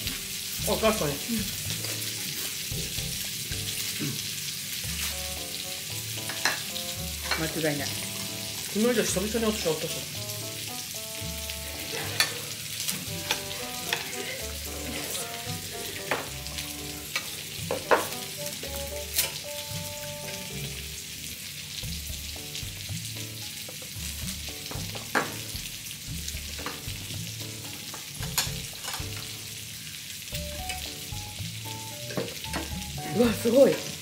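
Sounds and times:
meat sizzling on a grill: 0.0 - 34.0
metal utensil clicking on grill: 19.2 - 19.4, 27.9 - 29.3.

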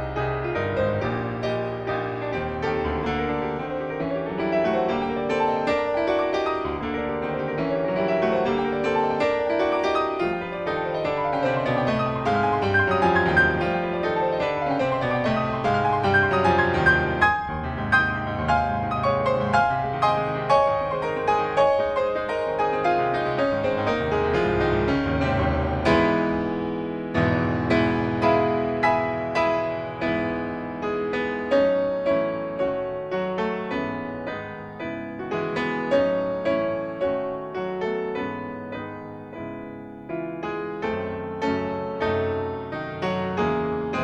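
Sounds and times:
piano music with quick notes: 0.0 - 44.0.

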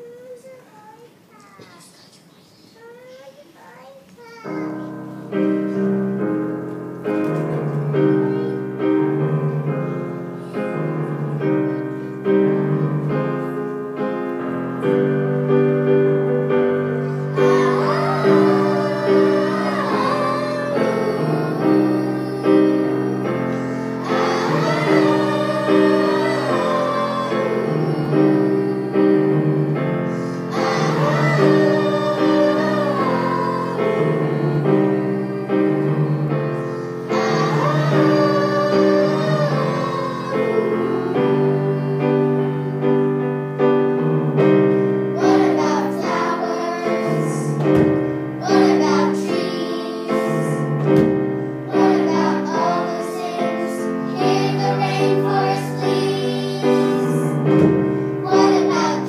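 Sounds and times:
piano accompaniment: 4.2 - 59.0
voices singing: 16.7 - 43.1, 45.0 - 59.0.

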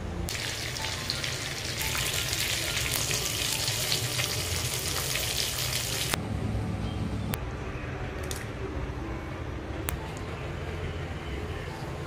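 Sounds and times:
fish frying in hot oil: 0.3 - 6.2.

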